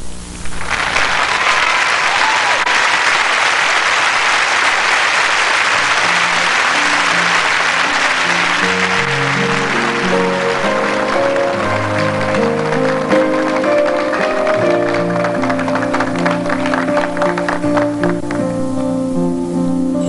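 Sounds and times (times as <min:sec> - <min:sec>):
audience applauding and cheering: 0:00.5 - 0:18.7
instrumental song intro: 0:05.7 - 0:20.0.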